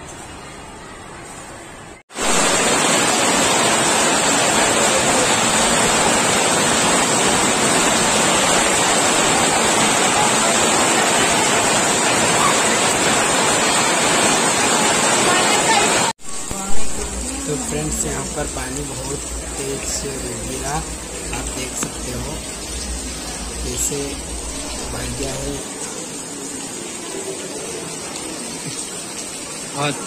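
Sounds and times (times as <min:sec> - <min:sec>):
heavy rain on metal roof: 0:02.0 - 0:30.0
water streaming off roof edge: 0:02.1 - 0:30.0.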